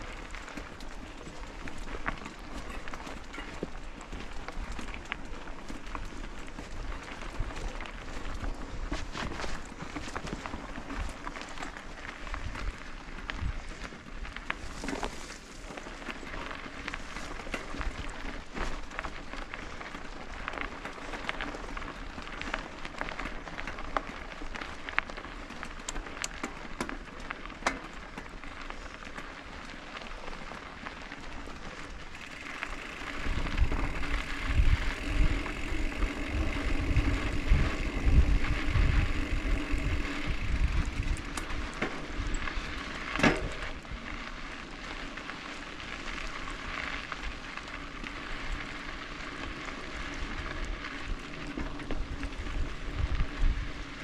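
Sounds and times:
bike chain and frame rattling: 0.0 - 54.0
bike tyres crunching on dirt: 0.0 - 54.0
wind buffeting microphone: 32.1 - 44.0, 51.8 - 54.0.

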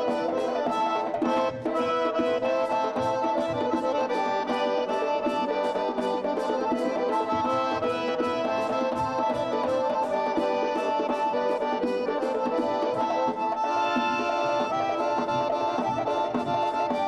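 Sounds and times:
accordion dance tune: 0.0 - 17.0.

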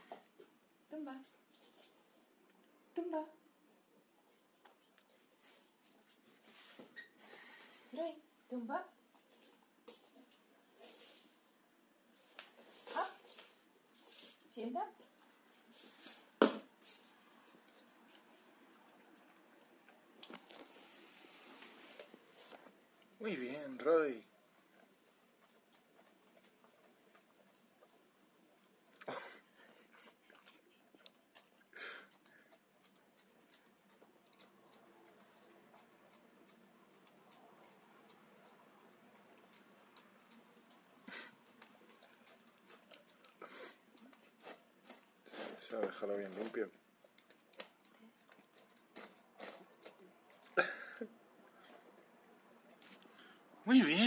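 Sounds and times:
dog chewing and lapping: 16.9 - 53.4.

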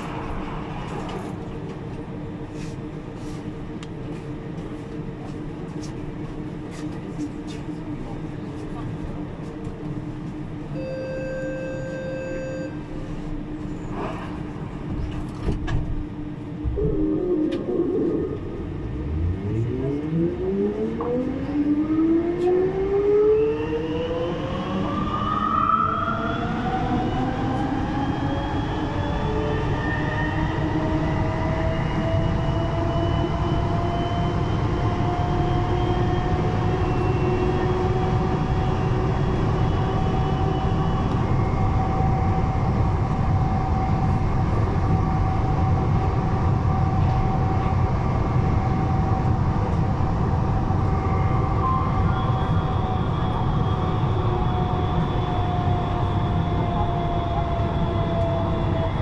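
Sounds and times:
low rumble: 13.9 - 21.7.

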